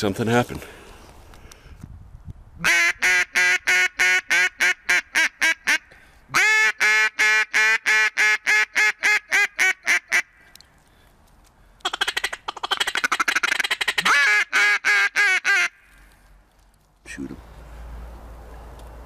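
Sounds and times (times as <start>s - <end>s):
duck call quacks: 2.6s - 10.3s, 11.8s - 15.8s.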